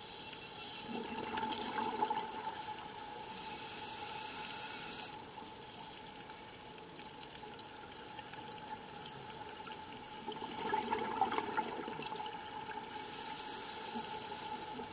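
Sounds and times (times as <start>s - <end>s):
exhaled bubbles gushing: 0.8s - 2.9s, 10.2s - 12.8s
regulator inhalation hiss: 2.6s - 5.2s, 12.8s - 14.9s.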